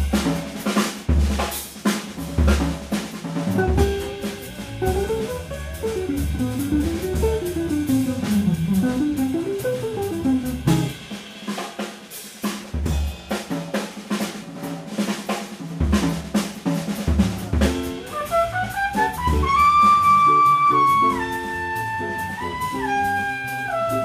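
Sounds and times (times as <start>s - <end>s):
drum kit playing: 0.0s - 24.0s
double bass notes: 3.5s - 11.1s, 17.1s - 24.0s.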